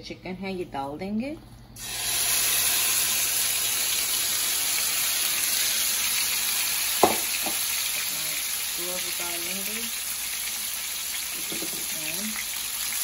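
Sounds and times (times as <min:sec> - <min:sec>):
chicken sizzling in hot oil: 0:01.8 - 0:13.0
sharp knock: 0:07.0 - 0:07.6.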